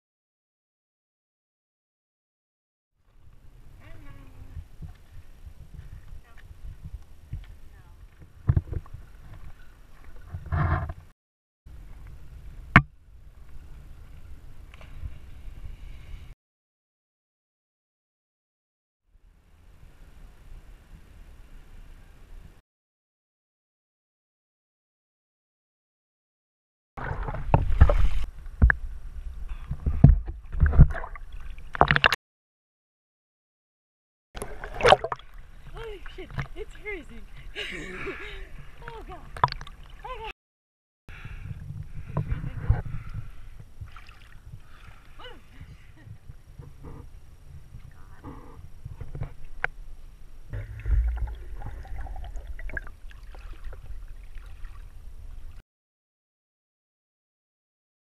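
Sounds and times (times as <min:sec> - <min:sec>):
water knocking against camera: 0:06.8 - 0:09.4
river water sloshing and splashing: 0:27.0 - 0:28.4, 0:34.4 - 0:36.7, 0:38.6 - 0:40.3, 0:43.7 - 0:45.2, 0:50.6 - 0:55.6
low rumble: 0:50.4 - 0:53.1.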